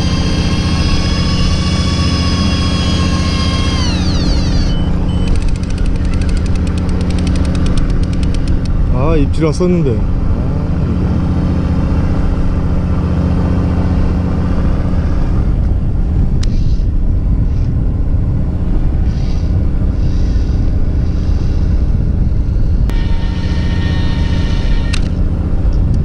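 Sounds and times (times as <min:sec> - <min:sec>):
boat engine droning: 0:00.0 - 0:26.0
sharp click: 0:05.2 - 0:08.8, 0:24.9 - 0:26.0.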